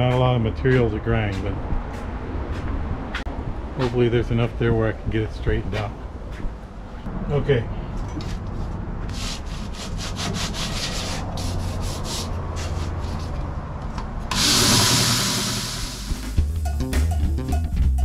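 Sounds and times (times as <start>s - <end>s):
wood rasping against sanding belt: 9.1s - 13.3s
hiss of wood on sanding belt: 14.4s - 16.3s.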